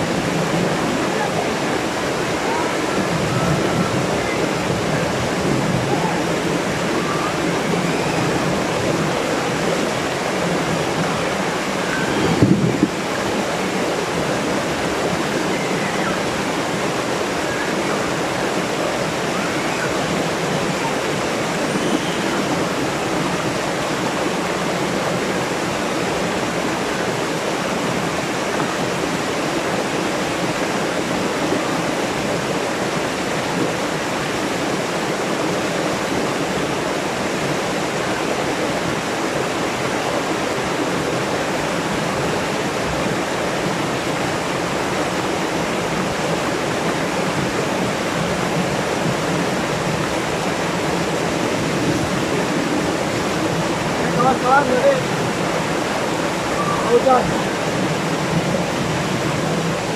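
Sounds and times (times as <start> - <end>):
waterfall rushing over rocks: 0.0 - 59.9.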